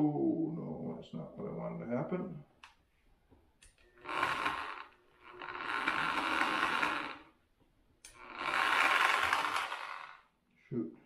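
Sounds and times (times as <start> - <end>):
electric drill running: 4.0 - 7.4, 8.1 - 10.3.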